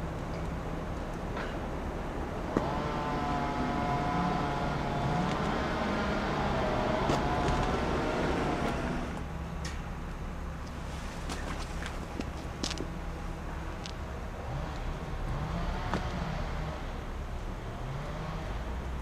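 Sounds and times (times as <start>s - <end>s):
mechanical whine: 3.2s - 9.3s.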